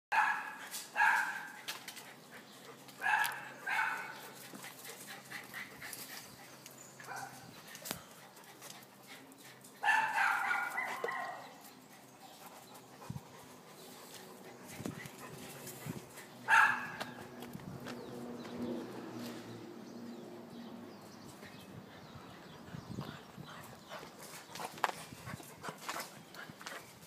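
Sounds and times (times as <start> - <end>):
dog barking: 0.1 - 1.5, 3.0 - 4.2, 9.8 - 11.5, 16.5 - 17.2.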